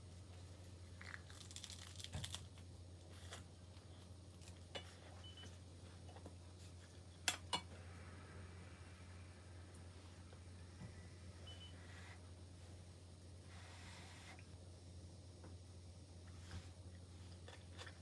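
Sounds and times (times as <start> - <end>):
seaweed wrapper crackling when chewed: 1.0 - 2.6.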